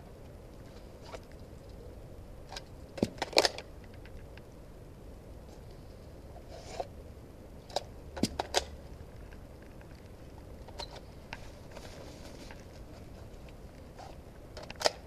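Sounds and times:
airsoft rifle clicks: 14.6s - 15.0s.

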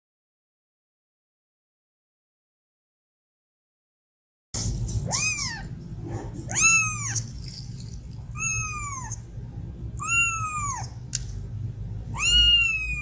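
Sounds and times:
kitten meowing: 5.0s - 5.8s, 6.5s - 7.4s, 8.3s - 9.3s, 10.0s - 11.0s, 12.1s - 13.0s.

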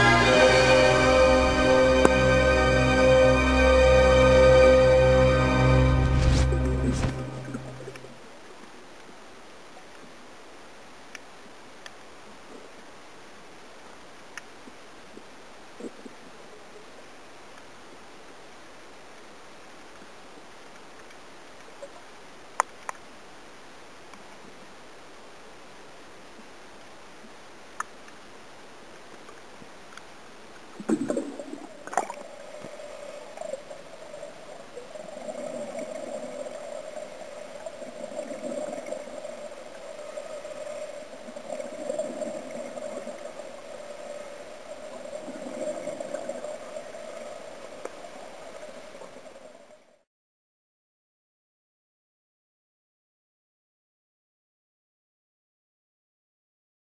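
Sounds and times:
underwater hiss: 30.8s - 49.7s.

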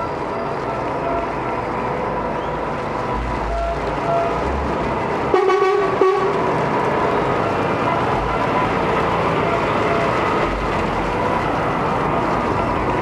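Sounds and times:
lorry horn blast: 5.3s - 6.4s.

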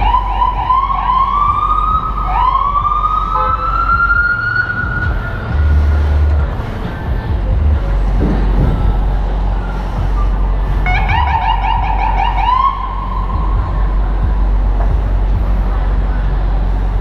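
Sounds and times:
emergency siren yelping: 0.0s - 5.6s, 10.8s - 13.8s
city traffic rumble: 0.0s - 17.0s
wind: 0.0s - 17.0s.

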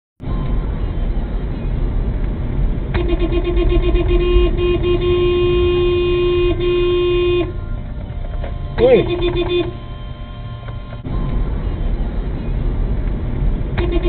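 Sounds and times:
road and cabin rumble: 0.2s - 14.0s
car horn honking: 2.9s - 11.1s, 13.8s - 14.0s.

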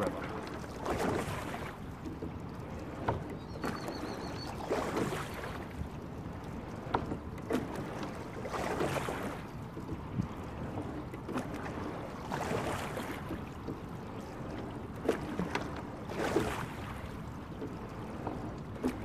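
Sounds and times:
water rushing with oar strokes: 0.0s - 19.0s.

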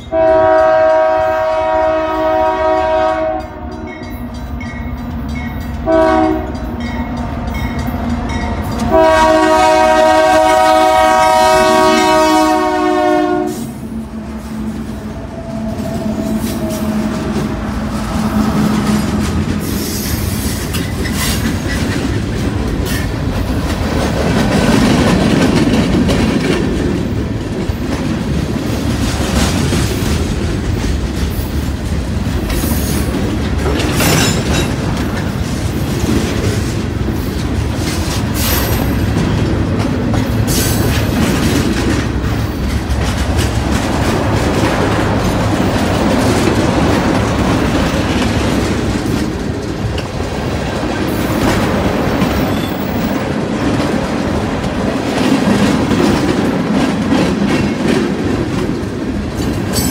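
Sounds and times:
train air horn blasts: 0.0s - 4.0s, 5.8s - 6.6s, 8.8s - 20.2s
diesel locomotives passing: 0.0s - 59.9s
freight cars rumbling: 3.5s - 59.9s.

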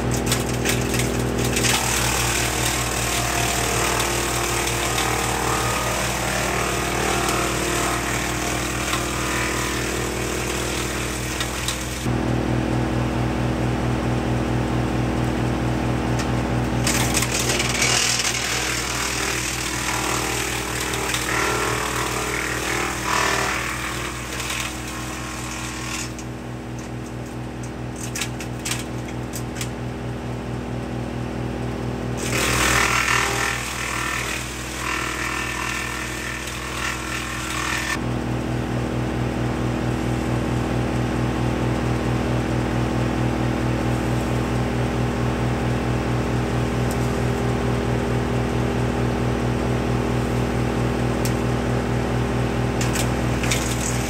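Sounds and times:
branches shredding: 0.0s - 12.0s, 16.8s - 26.0s, 52.7s - 54.0s
wood chipper running: 0.0s - 54.0s.

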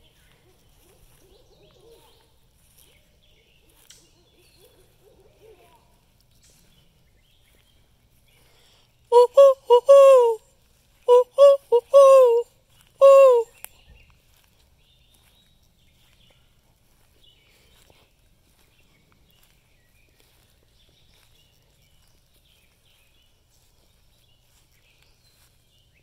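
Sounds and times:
owl hooting: 9.1s - 10.4s, 11.1s - 13.6s.

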